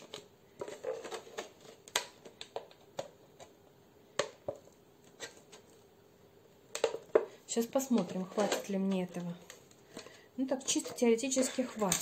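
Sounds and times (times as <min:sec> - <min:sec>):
plastic bottle clicking and crackling: 0:00.0 - 0:05.7, 0:06.7 - 0:10.1.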